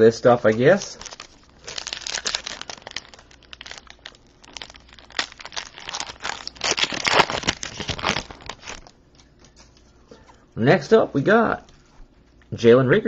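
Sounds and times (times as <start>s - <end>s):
wrapper crinkling and tearing: 0.4s - 9.0s.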